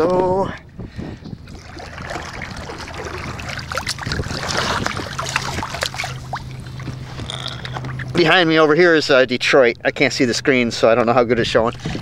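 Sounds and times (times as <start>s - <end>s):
low steady hum: 0.0s - 12.0s
water splashing against kayak: 1.3s - 8.4s, 11.6s - 12.0s.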